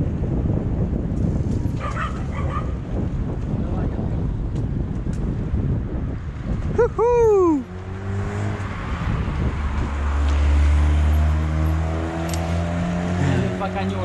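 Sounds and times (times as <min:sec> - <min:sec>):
car driving past: 0:07.6 - 0:14.0.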